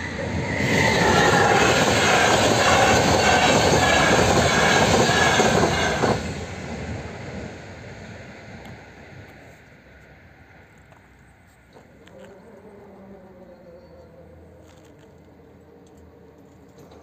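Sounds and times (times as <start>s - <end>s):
train wheels rushing on rail: 0.0s - 12.0s.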